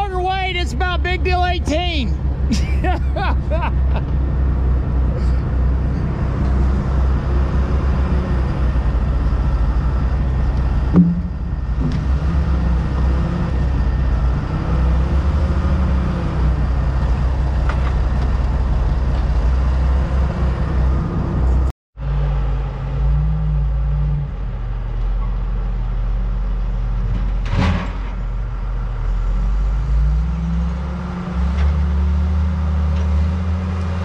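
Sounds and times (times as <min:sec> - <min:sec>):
heavy machinery engine running: 0:00.0 - 0:34.0
sharp knock: 0:10.9 - 0:12.0.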